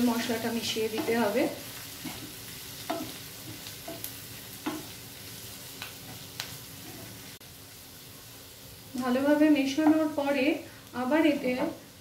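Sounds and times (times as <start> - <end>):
vegetables sizzling in oil: 0.0 - 12.0
spatula scraping pan: 0.8 - 5.0.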